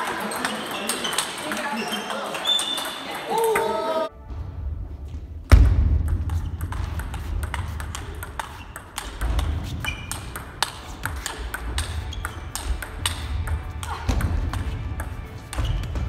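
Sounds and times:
table tennis ball clicking: 0.3s - 3.6s, 6.1s - 15.7s
heavy low thud: 4.3s - 6.3s.

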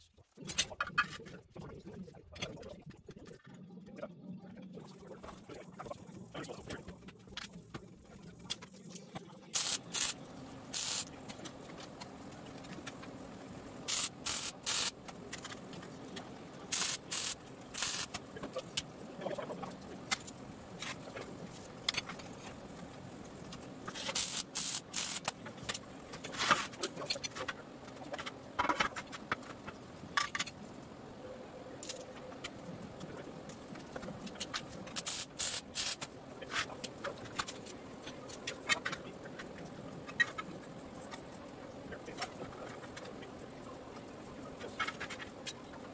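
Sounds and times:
welder crackling bursts: 9.5s - 11.1s, 13.9s - 15.0s, 16.7s - 18.2s, 23.9s - 25.3s, 35.0s - 36.1s.

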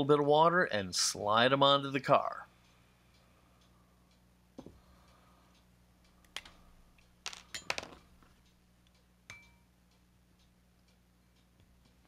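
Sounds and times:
metal tools clicking and tapping: 6.2s - 8.6s.

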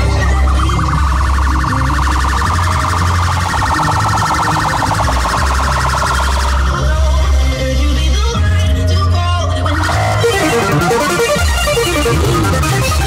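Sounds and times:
siren-like alarm tone: 0.0s - 7.5s, 9.5s - 13.0s
loud music with heavy bass: 0.0s - 13.0s.

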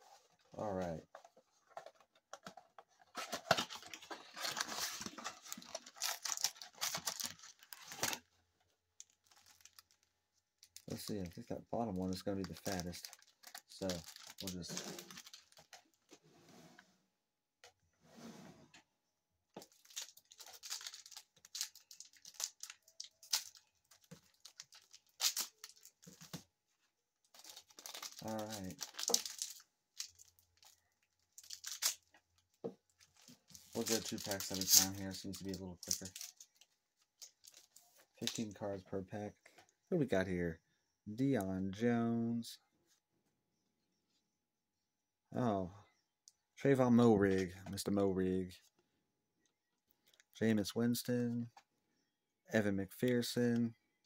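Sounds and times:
cardboard tearing and crackling: 3.1s - 8.2s, 12.4s - 15.7s, 19.7s - 26.1s, 27.4s - 30.7s.

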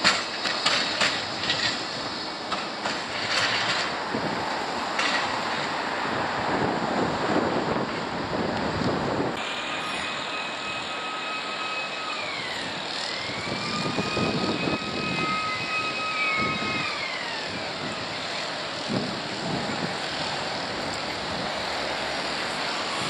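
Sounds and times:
wind buffeting microphone: 0.0s - 9.4s, 12.2s - 23.0s
thin high whine: 9.4s - 23.0s.

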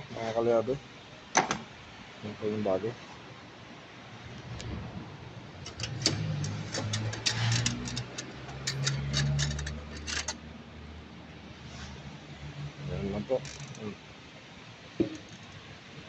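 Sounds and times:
metallic tool clicks: 5.6s - 10.4s.

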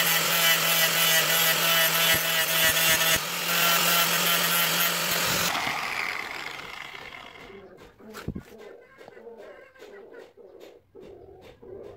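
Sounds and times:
angle grinder motor whine: 0.0s - 7.5s.

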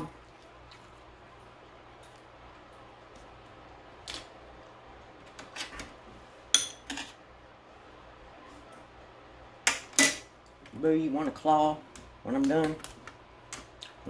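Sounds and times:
spoon clinking: 6.6s - 7.1s.

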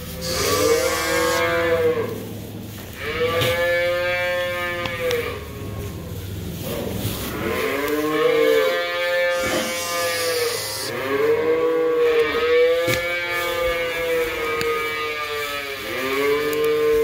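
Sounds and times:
young cattle mooing: 0.1s - 2.2s, 7.4s - 17.0s.

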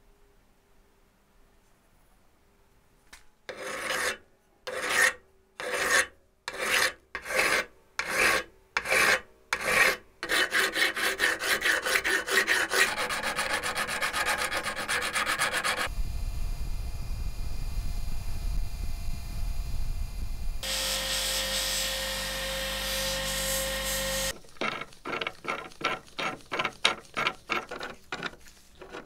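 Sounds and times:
file rasping on workpiece: 3.5s - 15.9s, 23.2s - 29.0s
low steady rumble: 15.9s - 20.7s.

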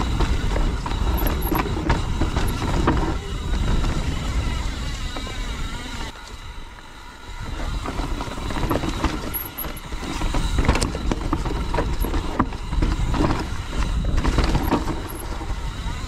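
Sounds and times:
bike clattering over rocks: 0.0s - 4.4s, 7.7s - 15.7s.

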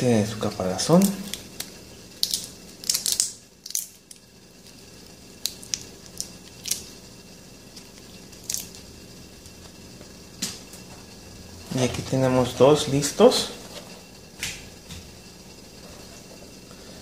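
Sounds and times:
shrimp shells crackling: 0.9s - 4.2s.

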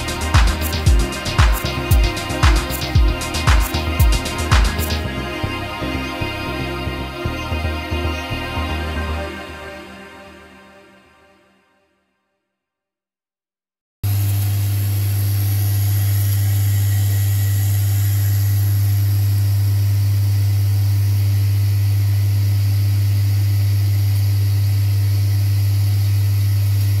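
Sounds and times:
vibratory feeder humming: 0.0s - 6.7s.

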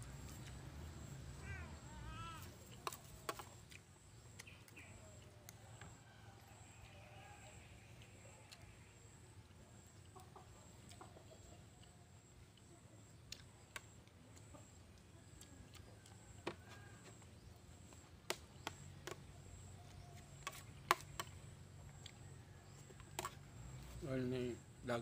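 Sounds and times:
chickens clucking: 9.4s - 22.0s.

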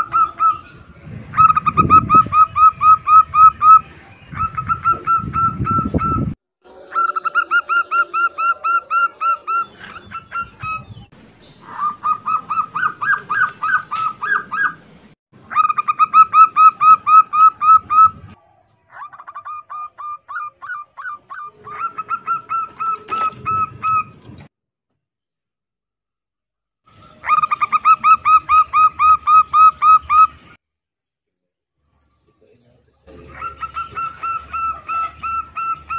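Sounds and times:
doves cooing: 0.0s - 24.5s, 27.2s - 30.4s, 33.1s - 35.9s.

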